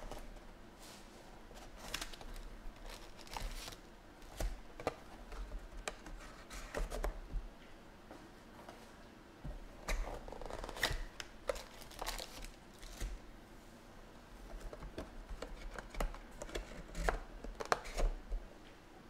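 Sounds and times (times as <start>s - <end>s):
foil packs rustling and crinkling: 1.6s - 4.6s, 10.2s - 13.1s.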